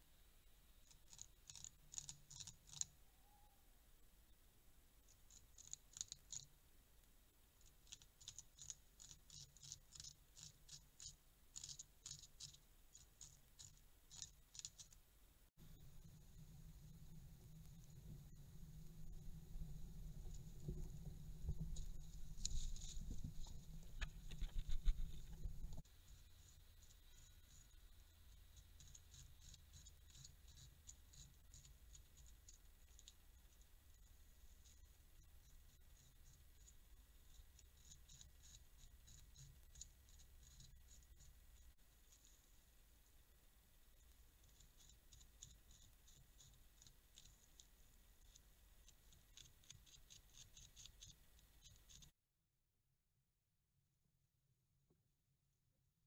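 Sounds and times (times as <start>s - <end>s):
beaver gnawing wood: 0.9s - 3.0s, 5.1s - 6.5s, 7.6s - 15.0s, 20.3s - 42.3s, 44.0s - 52.1s.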